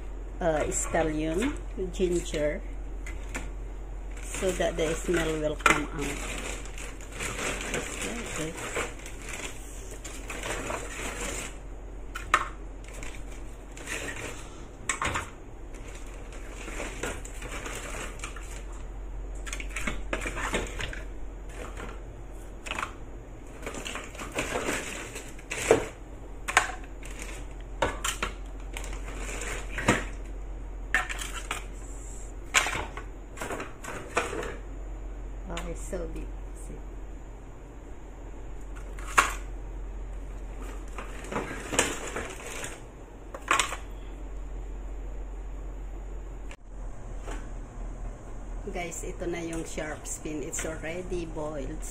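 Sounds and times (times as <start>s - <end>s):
low hum and hiss: 0.0s - 51.9s.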